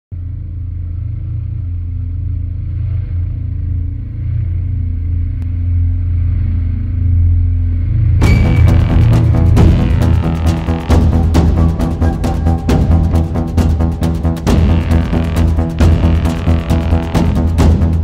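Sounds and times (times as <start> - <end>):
deep rumbling drone: 0.1 - 18.0
music with sharp regular beats: 8.2 - 18.0.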